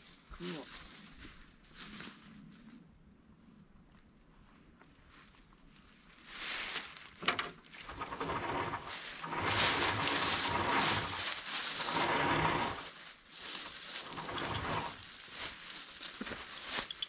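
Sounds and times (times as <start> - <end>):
footsteps crunching dry leaves: 0.0 - 2.8, 4.4 - 7.2, 7.9 - 17.0
winch line dragged across leaves: 6.2 - 17.0.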